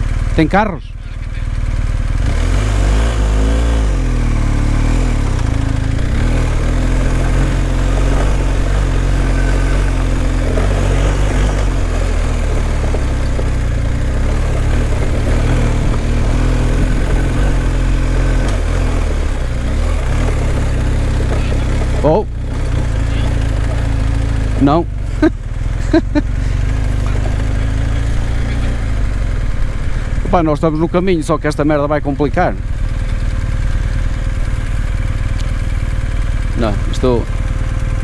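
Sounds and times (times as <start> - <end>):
motorcycle engine running at low revs: 0.0 - 38.0.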